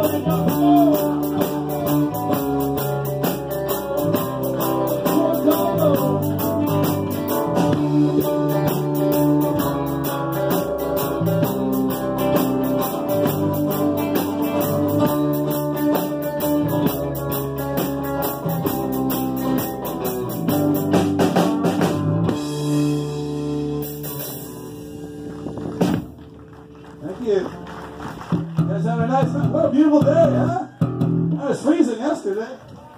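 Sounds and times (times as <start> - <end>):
drum kit steady beat: 0.0 - 26.3
live rock band playing: 0.0 - 32.0.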